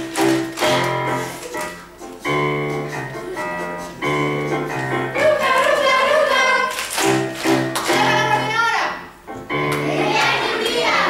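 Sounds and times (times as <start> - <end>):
children's choir singing: 2.7 - 6.8, 9.7 - 11.0.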